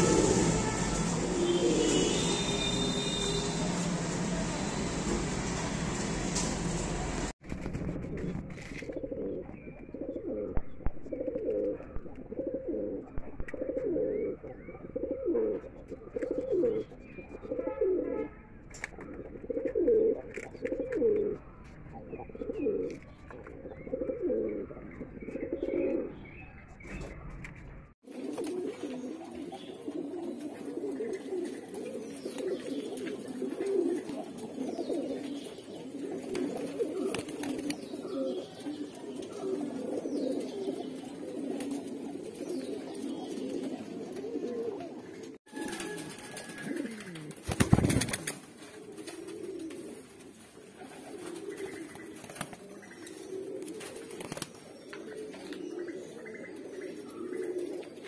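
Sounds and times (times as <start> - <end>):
pigeons cooing: 8.3 - 21.4, 22.0 - 26.3, 28.1 - 58.0.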